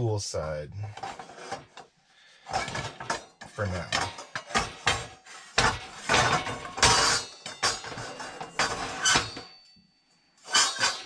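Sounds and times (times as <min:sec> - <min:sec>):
metal pan clanking and scraping: 0:00.9 - 0:01.8, 0:02.4 - 0:09.6, 0:10.5 - 0:11.0.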